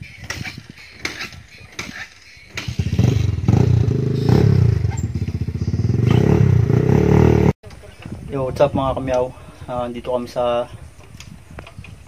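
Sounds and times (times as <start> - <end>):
motorcycle engine revving: 0.3 - 7.6.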